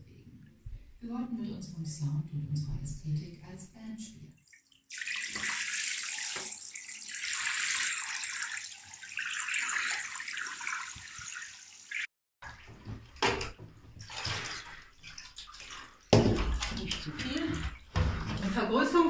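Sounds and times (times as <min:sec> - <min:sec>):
water splashing into tray: 0:04.5 - 0:18.6.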